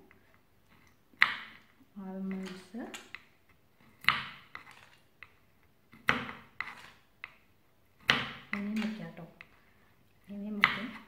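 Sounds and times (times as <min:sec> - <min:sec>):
knife chopping on wooden board: 0:01.2 - 0:01.6, 0:03.9 - 0:05.0, 0:05.9 - 0:07.4, 0:08.0 - 0:09.0, 0:10.5 - 0:11.0.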